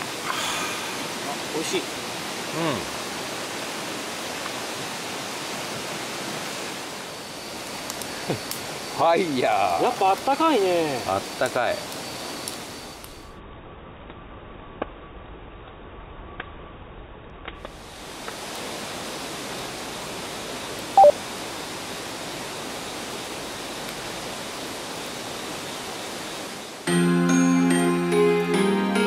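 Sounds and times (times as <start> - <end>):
campfire flames hissing: 0.0 - 13.4, 17.2 - 26.9
fire crackling pops: 1.0 - 13.3, 17.2 - 19.8, 23.7 - 26.3.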